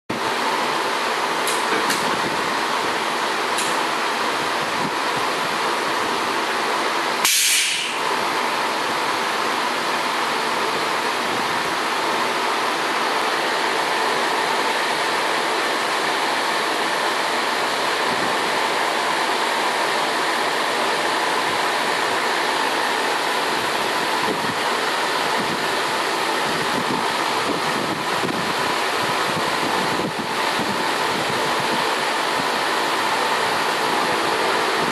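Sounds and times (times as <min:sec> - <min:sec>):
short air hiss: 0:07.2 - 0:08.0.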